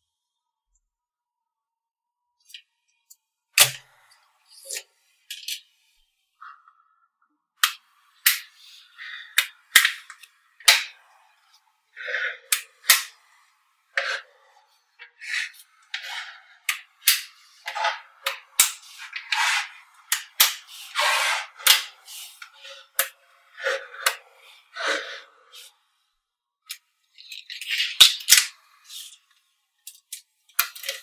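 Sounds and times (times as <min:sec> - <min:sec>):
balls rattling and scraping: 0:07.6 - 0:25.7, 0:27.0 - 0:31.0.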